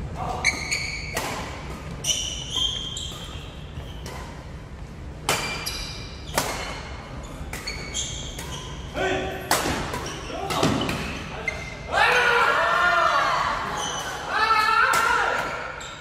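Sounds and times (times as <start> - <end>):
rackets hitting shuttlecock: 1.0 - 4.6, 5.2 - 8.8, 9.5 - 11.2.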